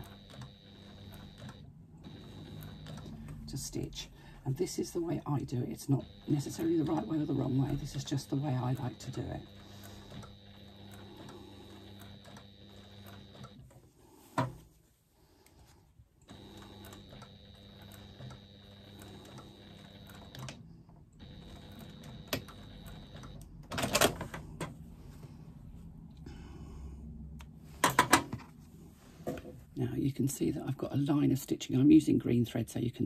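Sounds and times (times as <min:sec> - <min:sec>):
sewing machine motor running: 0:00.0 - 0:03.9, 0:04.7 - 0:13.7, 0:16.2 - 0:20.6, 0:21.2 - 0:23.5.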